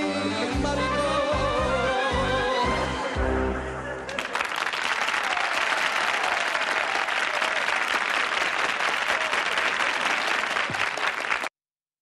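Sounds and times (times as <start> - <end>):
audience applauding: 4.1 - 11.5.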